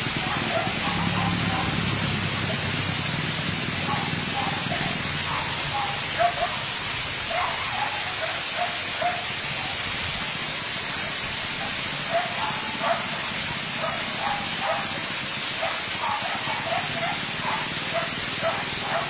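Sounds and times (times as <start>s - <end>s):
steady hiss: 0.0s - 19.0s
dog yelping: 0.2s - 1.8s, 3.9s - 6.6s, 7.3s - 9.3s, 12.1s - 13.1s, 15.6s - 19.0s.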